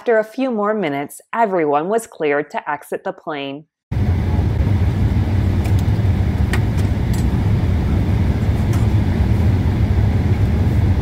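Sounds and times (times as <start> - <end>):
airliner cabin rumbling drone: 3.9 - 11.0.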